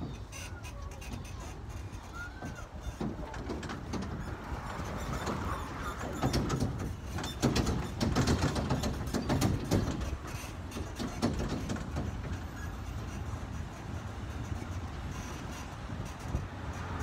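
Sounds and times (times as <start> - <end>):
rattling and knocking: 0.0 - 17.0
vehicle rumbling: 0.0 - 17.0.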